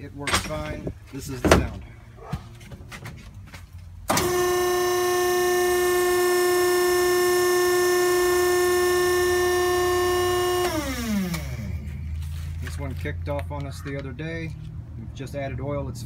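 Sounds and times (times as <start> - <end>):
pump motor whine: 4.1 - 12.1.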